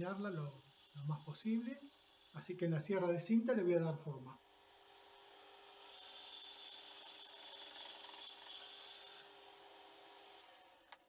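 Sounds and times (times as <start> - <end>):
bandsaw blade hissing through wood: 0.0 - 2.7, 5.7 - 10.4
faint saw hum: 0.0 - 11.0.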